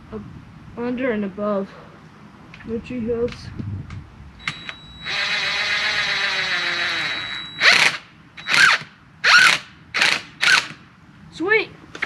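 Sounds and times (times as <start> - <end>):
cordless drill driving a screw: 4.4 - 10.7.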